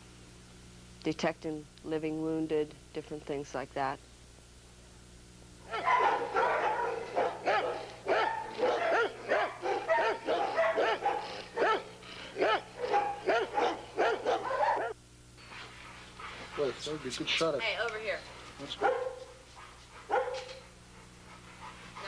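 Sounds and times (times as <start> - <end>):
dog barking rapidly: 5.7 - 15.0, 18.8 - 19.3, 20.1 - 20.5.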